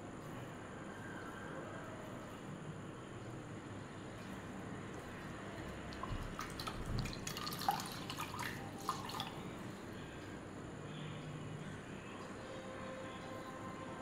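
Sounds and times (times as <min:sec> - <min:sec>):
cloth rinsed in water: 0:04.8 - 0:09.8.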